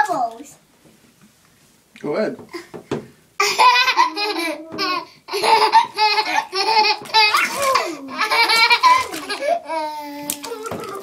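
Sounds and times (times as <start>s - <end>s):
baby laughing: 3.4s - 11.0s.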